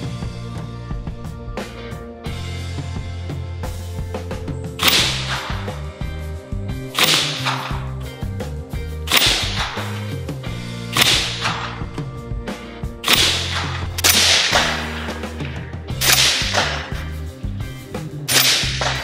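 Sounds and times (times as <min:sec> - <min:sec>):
background music with bass line: 0:00.0 - 0:19.0
suppressed rifle shots: 0:04.8 - 0:05.8, 0:06.9 - 0:08.0, 0:09.1 - 0:10.1, 0:10.9 - 0:12.0, 0:13.0 - 0:17.2, 0:18.3 - 0:19.0.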